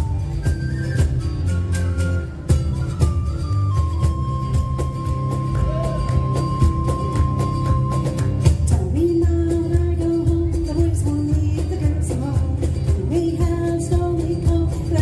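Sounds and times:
acoustic guitar: 0.0 - 15.0
drums steady beat: 0.0 - 15.0
electric bass: 0.0 - 15.0
melody of long held notes: 1.4 - 8.6.

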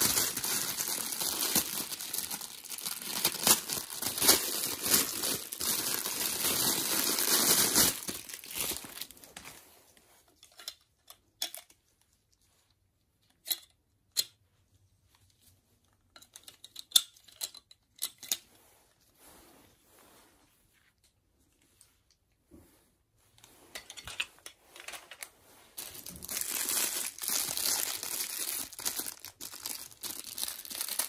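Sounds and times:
plastic bag crinkling and tearing: 0.0 - 9.5, 25.8 - 31.0.

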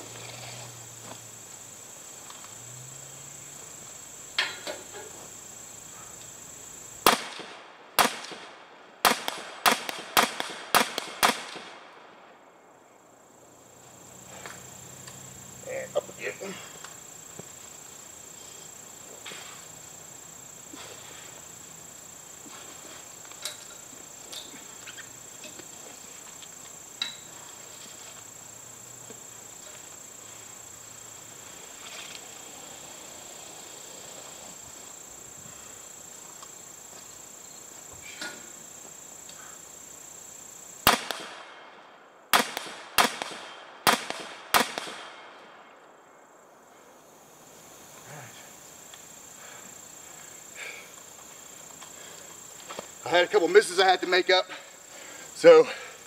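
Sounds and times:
rifle shots echoing: 7.0 - 12.3, 40.9 - 41.7, 42.3 - 45.4.

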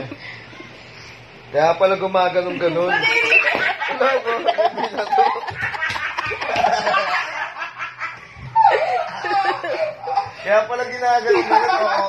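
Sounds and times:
people laughing and snickering: 2.6 - 12.0.

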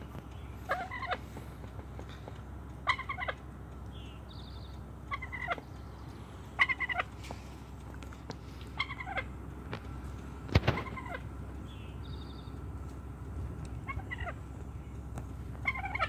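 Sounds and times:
turkey gobbling: 0.6 - 3.5, 4.7 - 7.4, 8.5 - 9.4, 10.5 - 11.4, 13.8 - 14.6, 15.6 - 16.0.

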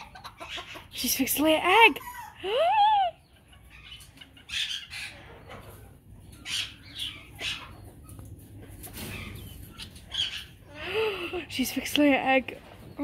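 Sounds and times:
chickens squawking low: 0.0 - 1.0
chickens rustling: 0.0 - 1.8, 3.3 - 13.0.

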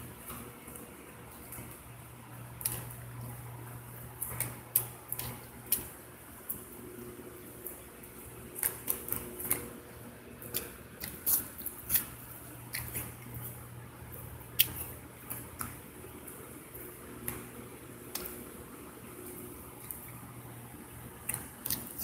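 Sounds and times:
steady low hum: 0.0 - 22.0
person chewing crunchy food: 10.4 - 15.9, 21.1 - 22.0.

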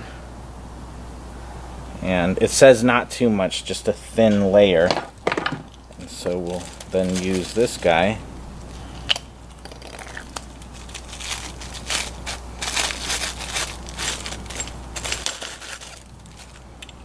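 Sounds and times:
plastic bag crinkling: 5.2 - 8.1, 9.8 - 17.0.

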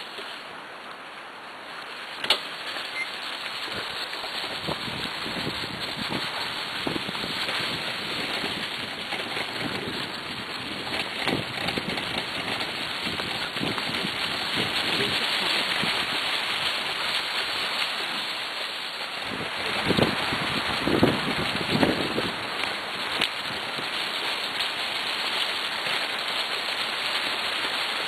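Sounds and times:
dry leaves crackling: 1.7 - 28.0
dog rig rushing over dry leaves: 2.1 - 28.0
wind on microphone: 3.6 - 17.1, 19.2 - 24.0.

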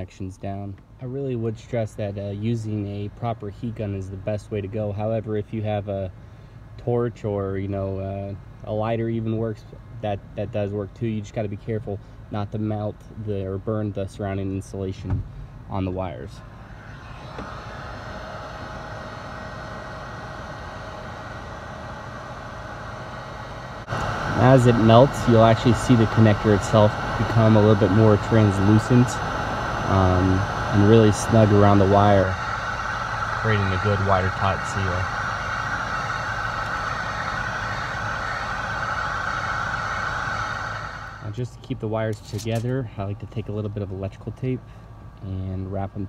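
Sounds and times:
heat gun fan hiss: 14.7 - 46.0.

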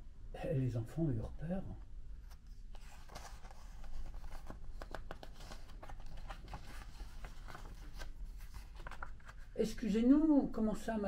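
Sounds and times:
book page turning: 2.2 - 9.5.

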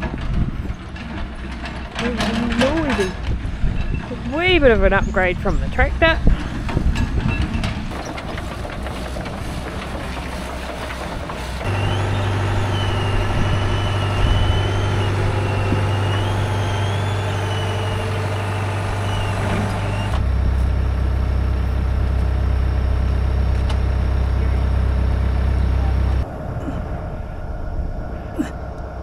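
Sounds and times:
excavator diesel engine running: 0.0 - 26.3
high wavering whine: 11.4 - 29.0.

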